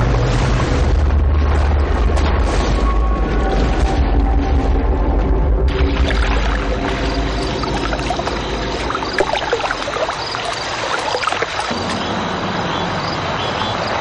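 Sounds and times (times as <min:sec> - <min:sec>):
water splashing from wading: 0:05.6 - 0:12.8.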